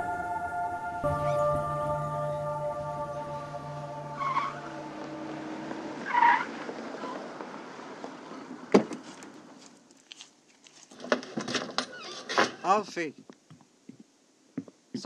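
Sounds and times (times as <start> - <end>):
theme music: 0.0 - 6.2
squeal-like sound effects: 0.8 - 7.2.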